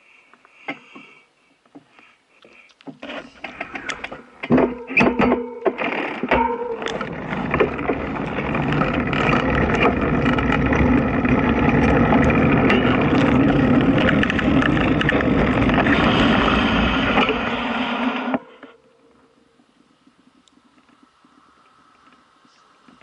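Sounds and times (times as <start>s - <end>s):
noisy rush: 3.3s - 23.0s
vehicle engine pulling away: 6.8s - 18.4s.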